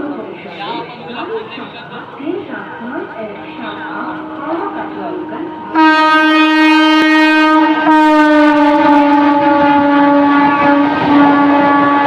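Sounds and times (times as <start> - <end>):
train running noise: 0.0 - 12.0
train horn blast: 5.5 - 12.0.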